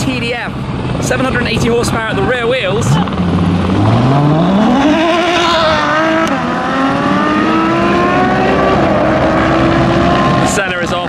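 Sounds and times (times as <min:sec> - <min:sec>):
car engines accelerating hard: 0:00.0 - 0:11.0.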